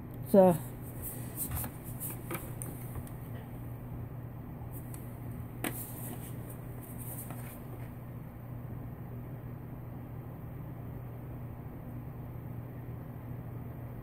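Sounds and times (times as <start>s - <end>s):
low steady hum: 0.0s - 14.0s
faint handling noises: 0.6s - 3.6s, 4.7s - 8.0s.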